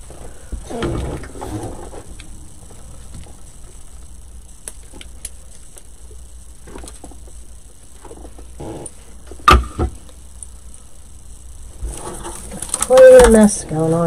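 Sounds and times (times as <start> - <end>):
rustling of artificial greenery: 11.6 - 14.0.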